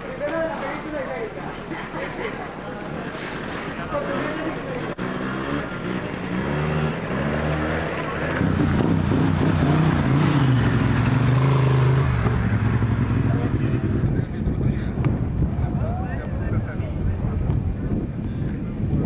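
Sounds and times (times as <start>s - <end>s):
motorcycle engines running: 3.9s - 19.0s.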